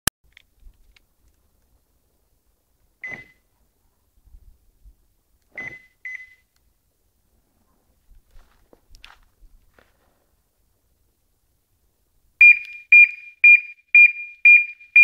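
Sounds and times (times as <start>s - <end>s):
car alarm chirps: 12.4s - 15.0s.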